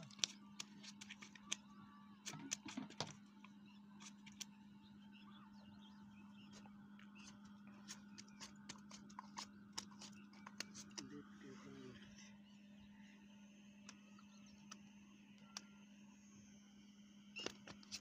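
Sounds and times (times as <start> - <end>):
small clicks and ticks: 0.0 - 1.7
faint low hum: 0.0 - 18.0.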